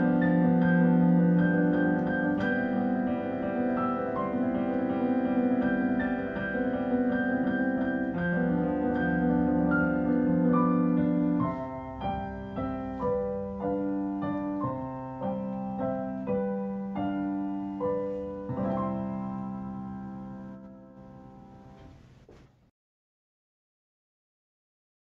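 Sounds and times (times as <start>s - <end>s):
slow solo piano melody: 0.0s - 22.0s.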